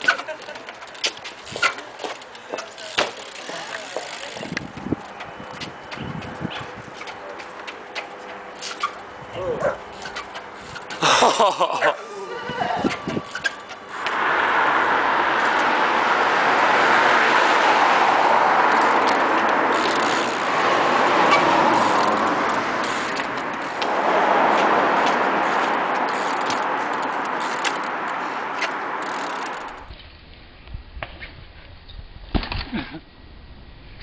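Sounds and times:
bicycle clicks and knocks: 0:00.0 - 0:09.2, 0:09.8 - 0:11.8, 0:12.8 - 0:14.2, 0:15.4 - 0:15.8, 0:16.5 - 0:30.0
tyres and wind rushing: 0:00.0 - 0:32.5.

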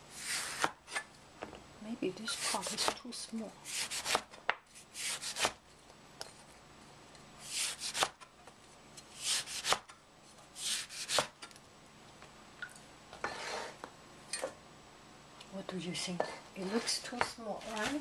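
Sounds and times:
cleaver slicing through orange: 0:03.7 - 0:05.6, 0:07.4 - 0:08.2, 0:09.2 - 0:09.9.

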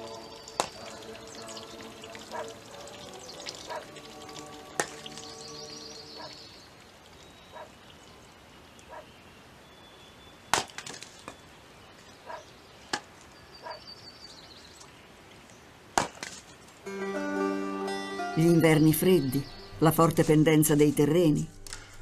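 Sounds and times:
axe chopping firewood: 0:10.5 - 0:11.1.

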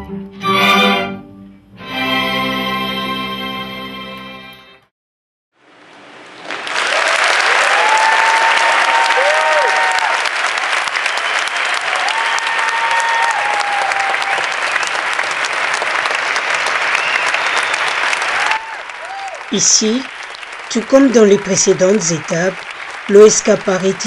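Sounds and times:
audience applause: 0:06.3 - 0:24.0
crowd cheering: 0:06.4 - 0:24.0.

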